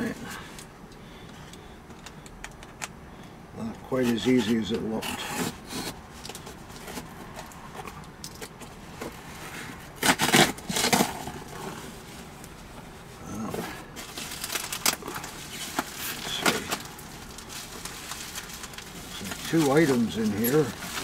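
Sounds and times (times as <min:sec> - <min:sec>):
cardboard scraping and rustling: 0:09.0 - 0:12.1, 0:13.5 - 0:21.0
loud cardboard tearing: 0:09.9 - 0:11.7
packing tape tearing: 0:10.0 - 0:11.6, 0:14.0 - 0:21.0.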